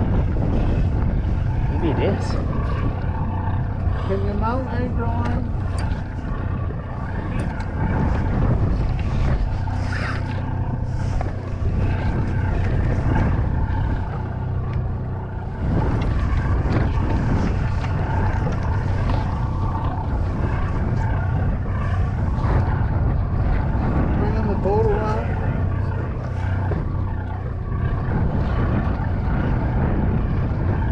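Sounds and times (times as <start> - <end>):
boat engine droning: 0.0 - 30.9.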